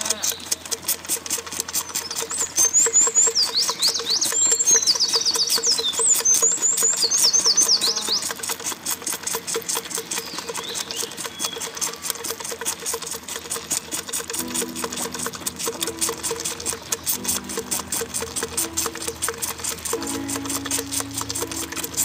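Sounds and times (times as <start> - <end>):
lamb sucking from bottle: 0.0 - 22.0
bird chirping: 1.8 - 8.3, 10.1 - 11.7.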